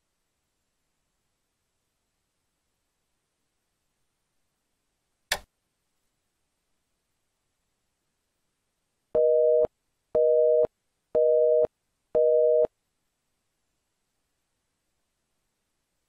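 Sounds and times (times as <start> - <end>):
telephone busy signal beeps: 9.2 - 12.7.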